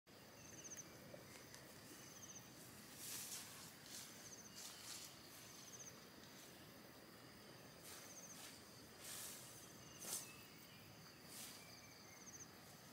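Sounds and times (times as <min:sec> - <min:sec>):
soft rustling: 0:02.6 - 0:06.6.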